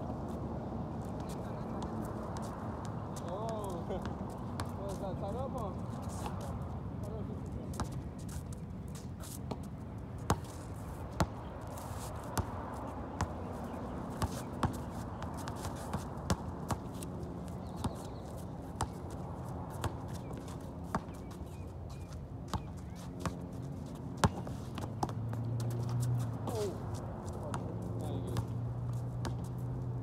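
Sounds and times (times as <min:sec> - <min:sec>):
basketball bouncing: 0:14.2 - 0:16.9, 0:24.2 - 0:26.6, 0:29.2 - 0:29.5.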